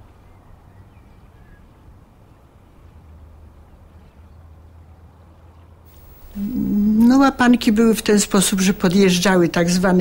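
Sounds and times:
faint hiss: 0:01.2 - 0:10.0
low hum: 0:05.9 - 0:10.0.

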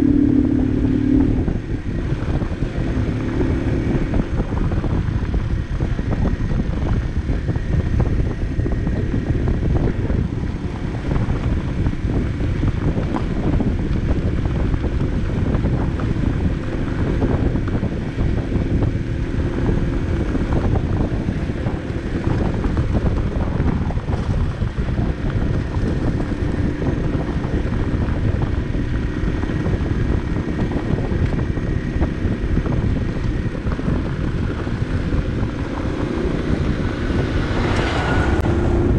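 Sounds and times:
moped engine humming: 0:00.0 - 0:38.9
tyres rumbling on gravel: 0:00.0 - 0:38.9
wind buffeting microphone: 0:00.0 - 0:38.9.

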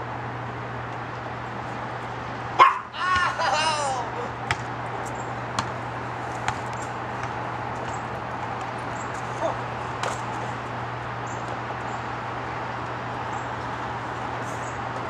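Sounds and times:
loud calls: 0:02.6 - 0:04.4
basketball hitting backboard and rim: 0:04.4 - 0:04.8, 0:05.5 - 0:05.8, 0:06.4 - 0:08.2.

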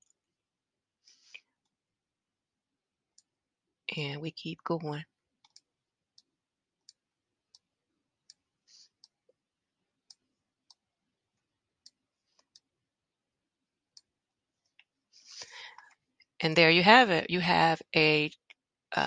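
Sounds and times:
computer mouse clicks: 0:05.4 - 0:09.3.

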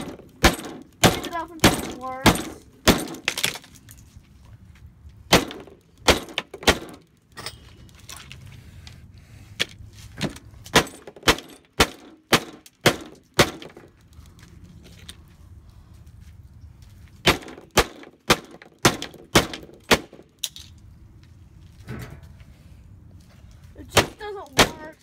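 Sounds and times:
hammer smashing plastic on metal: 0:00.0 - 0:03.7, 0:23.9 - 0:25.0.

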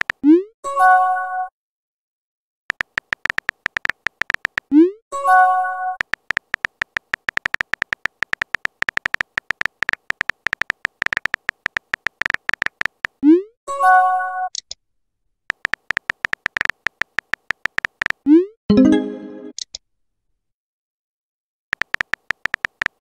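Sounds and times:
keyboard tapping: 0:02.7 - 0:04.7, 0:06.0 - 0:13.2, 0:15.5 - 0:18.2, 0:21.8 - 0:23.0
multi-tone message chime: 0:18.7 - 0:19.5.

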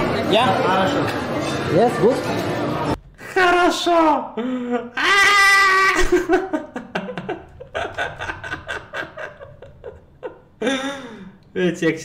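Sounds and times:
man chuckling: 0:06.0 - 0:11.2.

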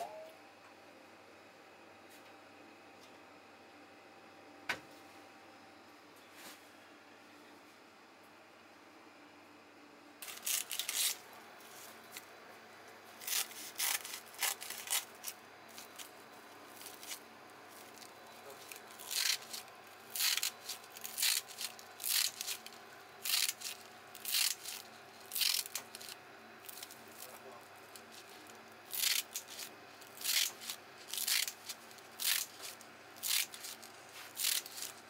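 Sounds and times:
kitchen shears snipping seaweed: 0:10.2 - 0:11.2, 0:13.2 - 0:16.1, 0:17.8 - 0:27.4, 0:28.0 - 0:35.0.

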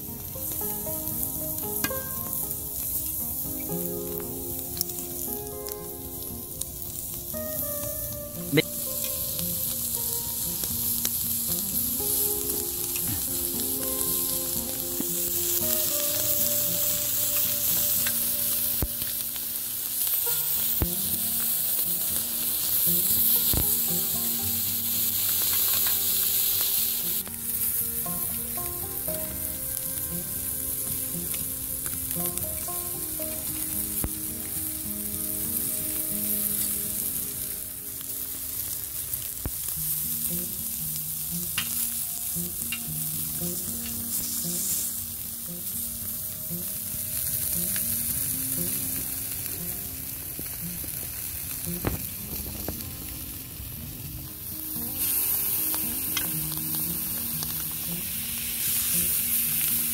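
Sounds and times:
chicken wings sizzling on pan: 0:00.0 - 0:59.9.

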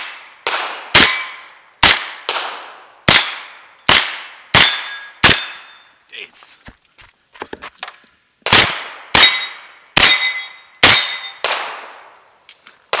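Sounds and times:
gunshots: 0:00.0 - 0:05.7, 0:08.4 - 0:11.9
steel targets clanging: 0:03.1 - 0:06.2, 0:09.2 - 0:12.2.

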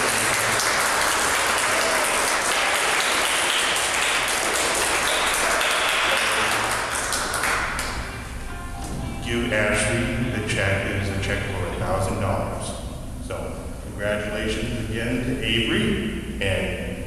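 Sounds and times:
audience applauding: 0:00.0 - 0:08.3.

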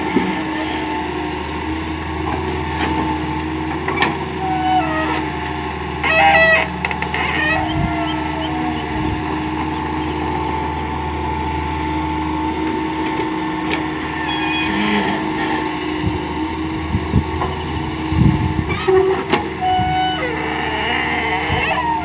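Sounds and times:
excavator diesel engine running: 0:00.0 - 0:22.0
knocks and clunks: 0:18.7 - 0:19.6.

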